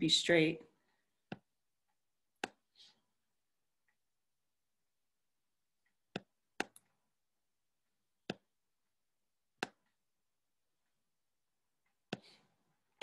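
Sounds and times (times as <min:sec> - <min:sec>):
computer mouse clicks: 0:05.9 - 0:07.0, 0:09.6 - 0:10.0.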